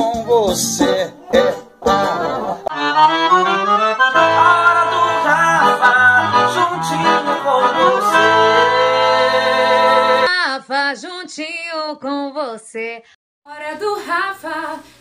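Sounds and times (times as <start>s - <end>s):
accordion playing chords and melody: 0.0s - 10.3s.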